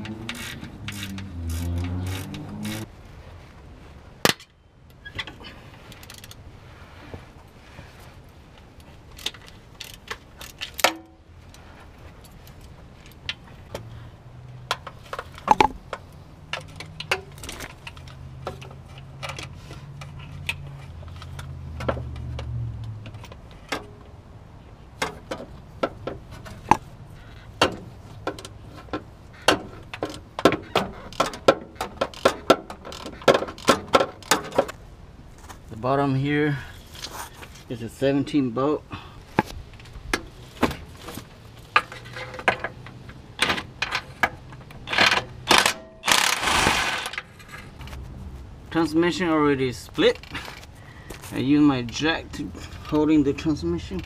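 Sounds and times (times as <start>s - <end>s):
hand ratchet clicking: 0.0s - 2.9s.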